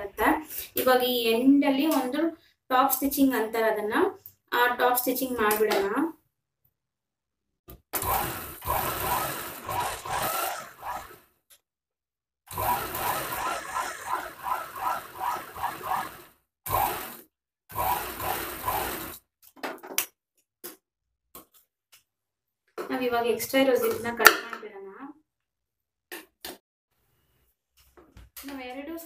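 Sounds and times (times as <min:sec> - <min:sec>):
sewing machine running: 0:08.0 - 0:11.2, 0:12.5 - 0:19.2.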